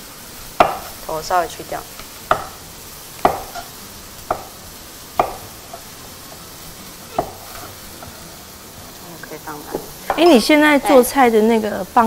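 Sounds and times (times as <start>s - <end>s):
knife knocking on cutting board: 2.3s - 2.6s, 3.2s - 3.6s, 4.3s - 4.5s, 5.2s - 5.4s, 7.1s - 7.5s, 9.7s - 10.3s.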